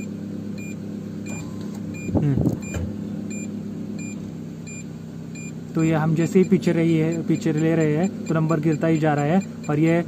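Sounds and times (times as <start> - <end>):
car engine idling: 0.0 - 10.0
parking sensor buzzer beeping: 0.0 - 10.0.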